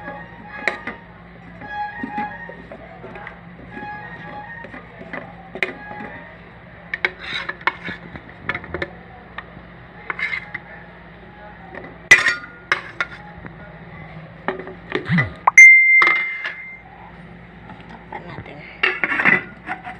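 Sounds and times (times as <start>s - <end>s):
metal spoon clinking on pot: 15.5s - 16.8s.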